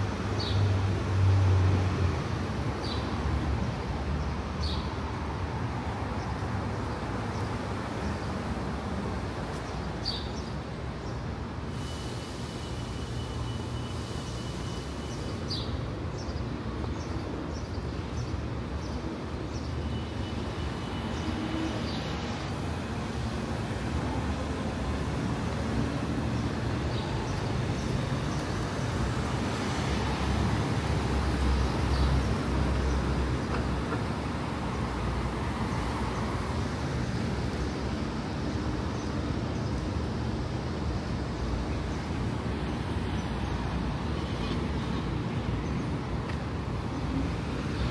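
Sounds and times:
city street traffic: 0.0s - 47.9s.

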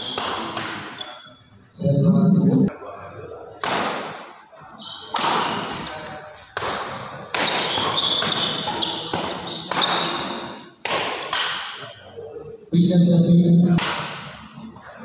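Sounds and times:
racket hitting shuttlecock: 6.6s - 11.8s.

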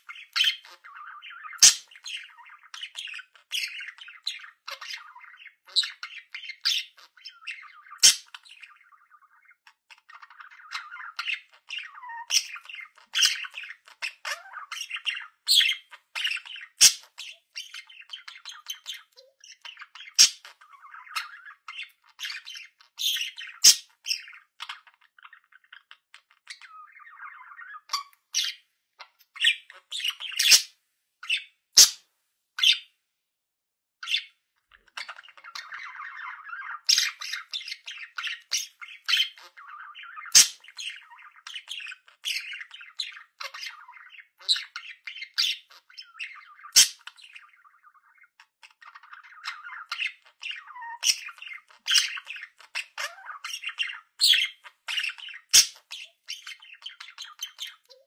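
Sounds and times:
sharp bird chirps: 0.0s - 9.4s, 10.2s - 24.9s, 29.4s - 32.0s, 35.0s - 58.0s
budgerigar warbling and chattering: 0.0s - 32.0s, 32.6s - 32.9s, 34.0s - 58.0s.

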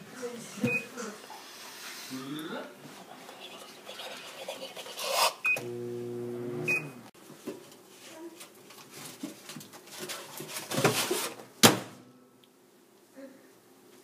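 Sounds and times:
microwave beep: 0.6s - 0.9s, 5.4s - 7.0s
microwave humming: 5.5s - 7.1s.

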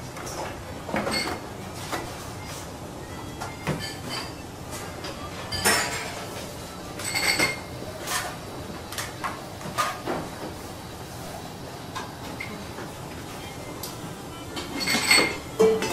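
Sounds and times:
steady kitchen background noise: 0.0s - 15.9s
dishes and utensils clinking: 0.2s - 2.6s, 3.4s - 10.4s, 13.4s - 15.9s.

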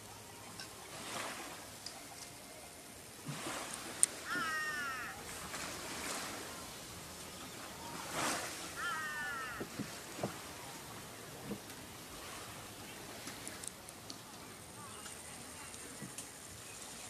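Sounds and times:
animal calling high wavering cry: 8.8s - 9.6s.

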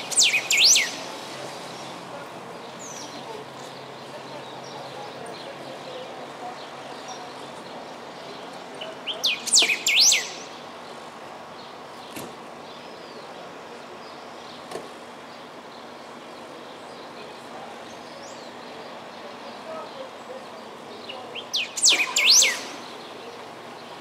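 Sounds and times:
bird singing whistled notes: 0.0s - 1.1s, 9.1s - 10.6s, 21.3s - 23.3s
steady outdoor hiss: 0.0s - 24.0s.

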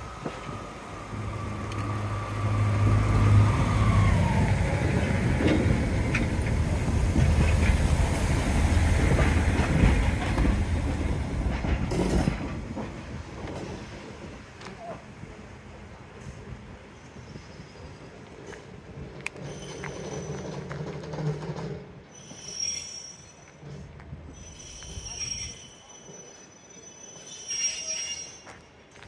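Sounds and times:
diesel train engine hum: 0.0s - 21.0s
wheels clicking over rail joints: 0.2s - 13.8s, 18.2s - 22.2s.

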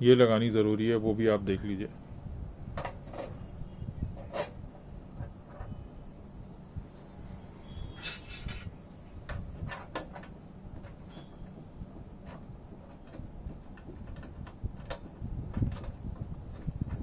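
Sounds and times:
low steady hum: 0.0s - 17.0s
small metal clicks and taps: 12.2s - 16.3s.

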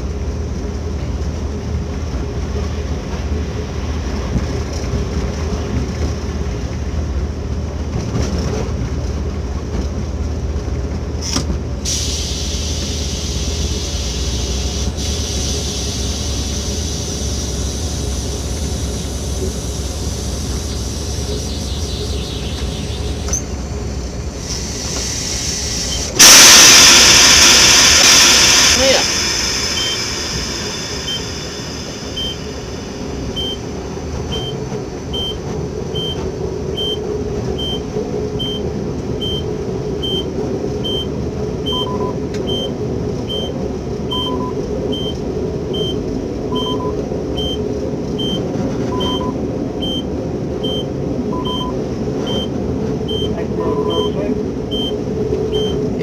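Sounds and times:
train rumble and rail noise: 0.0s - 56.0s
lower electronic beep: 19.4s - 24.4s, 25.8s - 33.7s, 34.3s - 36.2s, 37.6s - 47.6s, 48.2s - 52.5s, 53.1s - 55.8s
short high electronic beep: 21.2s - 23.5s, 25.9s - 33.6s.

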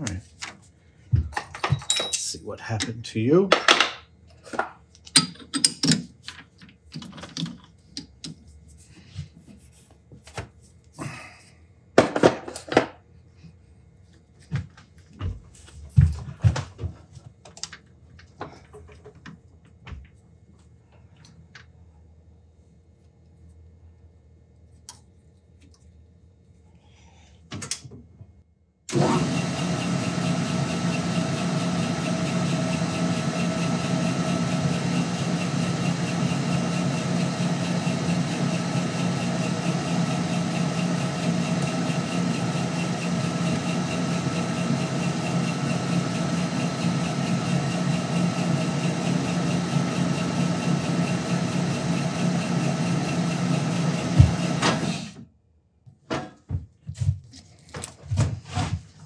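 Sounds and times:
metal lathe motor drone: 28.9s - 55.2s.

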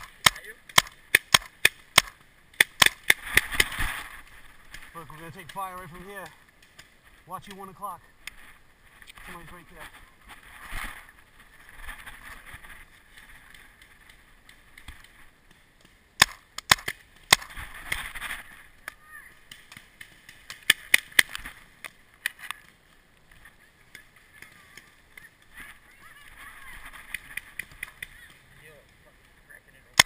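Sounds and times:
paintball marker shots: 0.0s - 3.8s, 15.8s - 18.1s, 19.5s - 22.0s.

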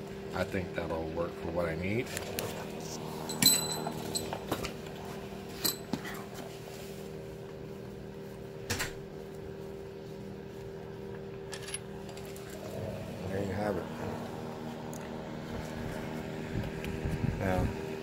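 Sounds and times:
low electrical hum: 0.0s - 18.0s
metallic clinks of tools: 3.3s - 4.5s, 5.6s - 5.9s.

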